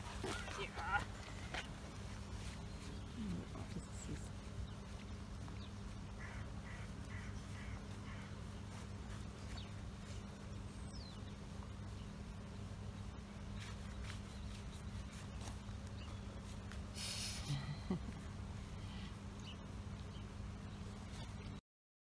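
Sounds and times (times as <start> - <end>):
steady low hum: 0.0 - 21.6
bird calling: 2.4 - 11.4.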